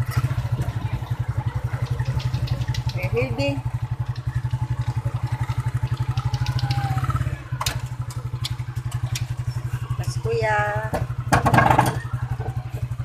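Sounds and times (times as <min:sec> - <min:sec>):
motorcycle engine running: 0:00.0 - 0:13.0
vehicle body rattling: 0:00.0 - 0:13.0
clatter of knocks: 0:10.9 - 0:12.0.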